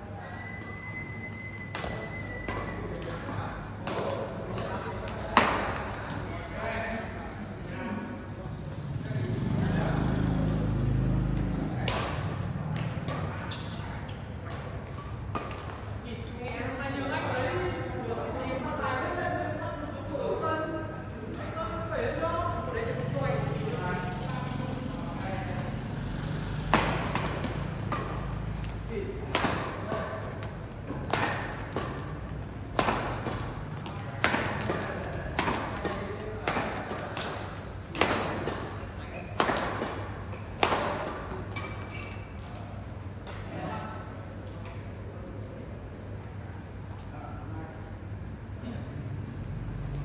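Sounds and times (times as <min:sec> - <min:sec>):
racket hitting shuttlecock: 0:01.6 - 0:06.2, 0:11.3 - 0:16.0, 0:26.4 - 0:43.6.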